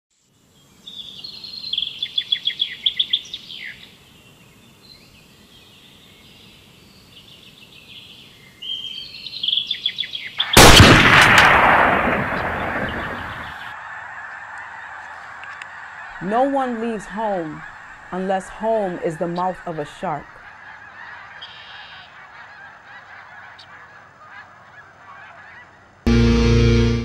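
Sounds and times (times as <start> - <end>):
songbirds trilling: 0.4 - 26.0
loud blast with cracks: 10.5 - 13.6.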